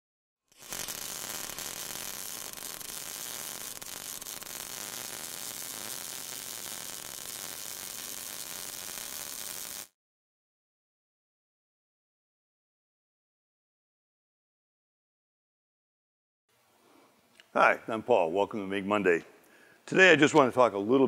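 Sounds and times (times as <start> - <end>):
welding arc crackling hiss: 0.5 - 10.0.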